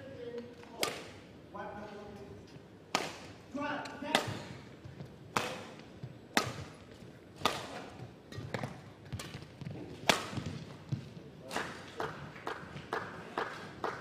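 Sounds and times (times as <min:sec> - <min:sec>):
rackets striking shuttlecock: 0:00.7 - 0:01.2, 0:05.3 - 0:10.7.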